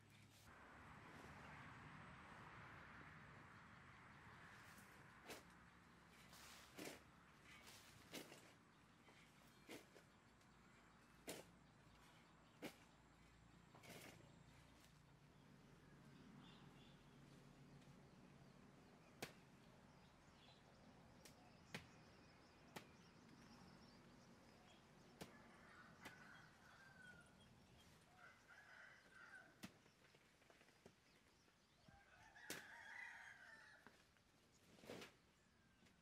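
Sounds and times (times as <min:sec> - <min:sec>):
rooster crowing: 0:28.1 - 0:29.5, 0:31.9 - 0:33.9
distant chicken calls: 0:31.8 - 0:34.0.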